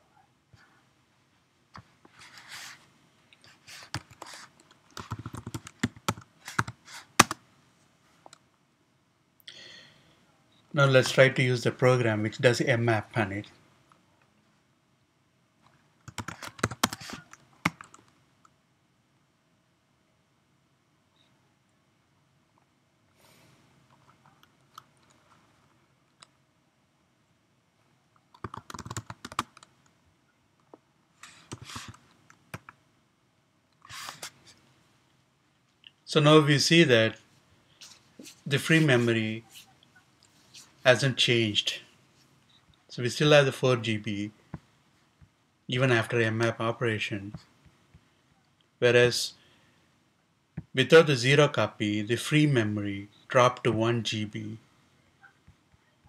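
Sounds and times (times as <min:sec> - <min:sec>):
typing on computer keyboard: 0:05.0 - 0:07.4, 0:16.1 - 0:18.1, 0:28.3 - 0:29.7.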